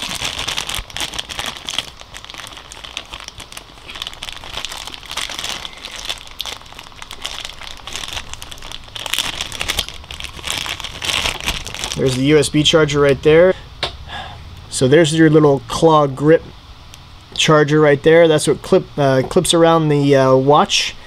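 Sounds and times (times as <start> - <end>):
plastic bag crinkling: 0.0 - 13.2.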